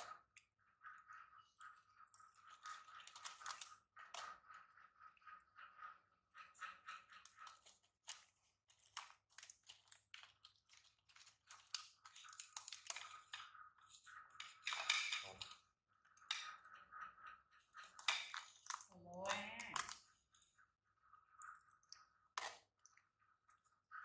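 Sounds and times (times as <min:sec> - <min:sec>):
popcorn crunching: 0:02.4 - 0:04.3, 0:07.1 - 0:15.6.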